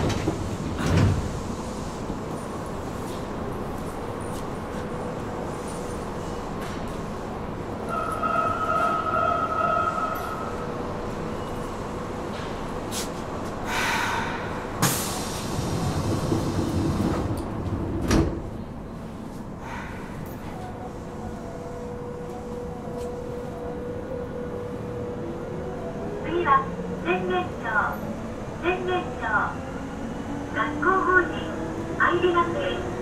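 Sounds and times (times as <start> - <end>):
sliding doors thumping shut: 0.0 - 1.4, 15.8 - 18.5
train electric hum: 0.0 - 33.0
train door hiss: 12.9 - 17.1.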